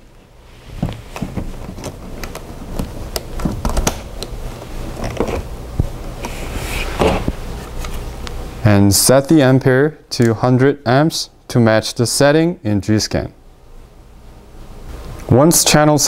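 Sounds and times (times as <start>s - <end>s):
cable and plastic handling noise: 0.8s - 5.5s.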